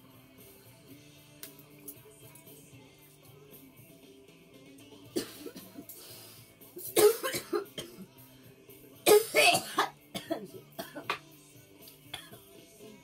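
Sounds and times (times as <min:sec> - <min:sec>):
background music: 0:00.0 - 0:13.0
woman coughing: 0:05.2 - 0:05.8, 0:06.9 - 0:08.0, 0:09.1 - 0:11.2.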